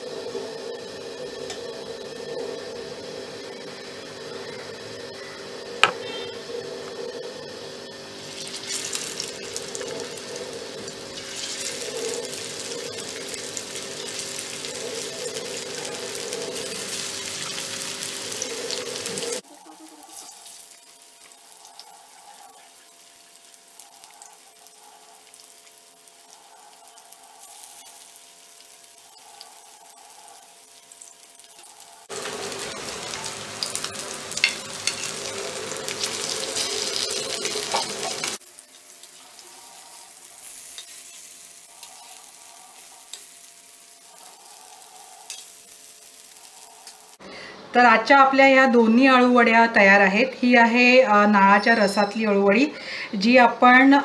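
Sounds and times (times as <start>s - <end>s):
food sizzling in oil: 7.5s - 47.2s.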